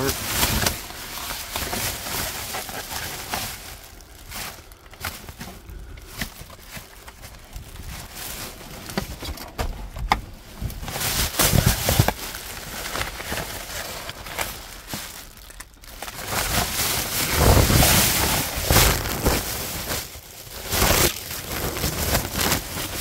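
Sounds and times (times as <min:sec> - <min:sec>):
rustling of items in dumpster: 0:00.0 - 0:23.0.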